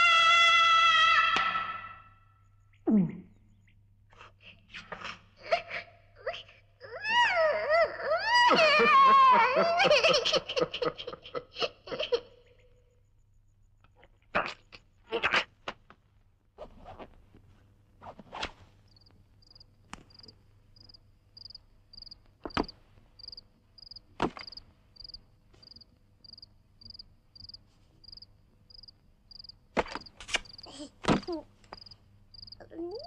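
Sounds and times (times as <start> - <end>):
high insect-like chirp: 18.9 - 22.6, 23.2 - 29.6, 31.7 - 33.0
sharp knocks and thuds: 22.4 - 22.8, 24.2 - 24.6.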